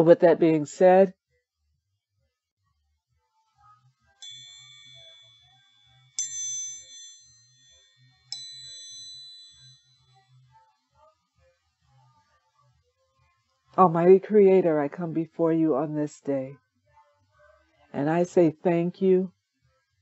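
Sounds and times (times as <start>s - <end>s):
metal meditation chime ringing: 4.2s - 10.2s.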